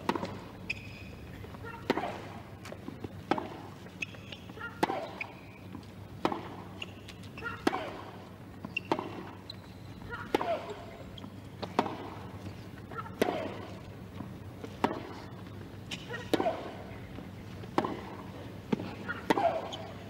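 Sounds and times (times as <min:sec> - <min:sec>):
tennis ball hit with rackets: 0:00.0 - 0:00.4, 0:03.2 - 0:03.7, 0:04.7 - 0:05.4, 0:06.2 - 0:06.6, 0:07.5 - 0:08.2, 0:08.8 - 0:09.4, 0:11.6 - 0:12.3, 0:13.0 - 0:13.6, 0:14.8 - 0:15.2, 0:17.7 - 0:19.8.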